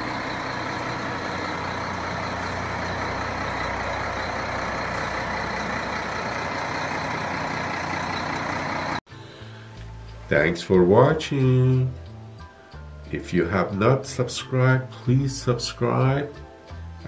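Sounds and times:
fire truck engine driving past: 0.0 - 9.0.

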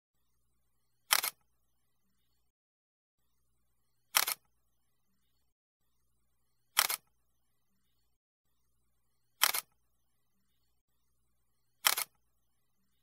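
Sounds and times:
camera shutter clicks: 1.1 - 1.4, 4.2 - 4.4, 6.8 - 7.1, 9.4 - 9.7, 11.8 - 12.2.

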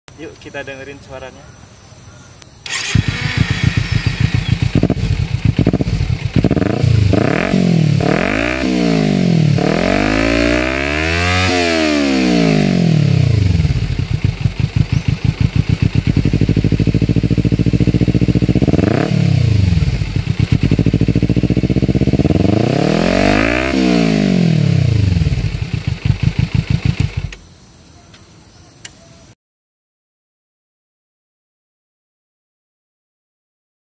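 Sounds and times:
motorcycle engine revving: 2.6 - 27.4.

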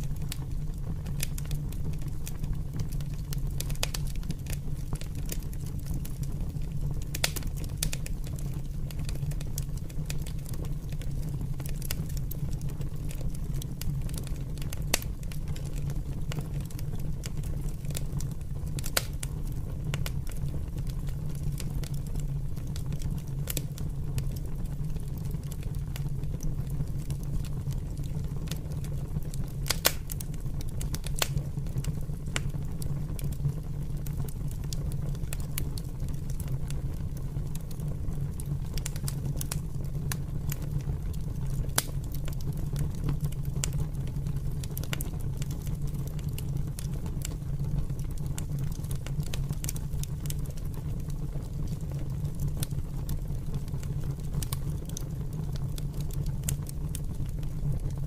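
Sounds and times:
open fire crackling: 0.0 - 58.0
sharp pops of fire: 29.6 - 30.2, 30.9 - 31.5.

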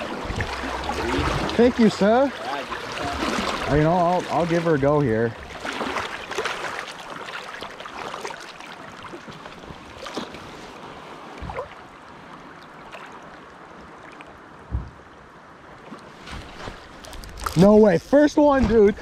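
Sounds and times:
river current flowing and lapping: 0.0 - 19.0
low thumps: 14.7 - 15.0.

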